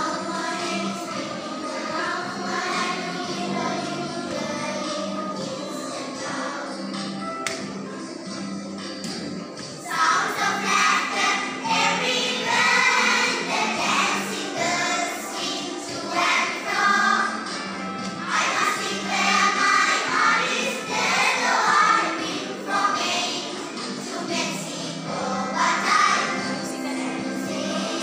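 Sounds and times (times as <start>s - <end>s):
children's choir singing: 0.0s - 28.0s.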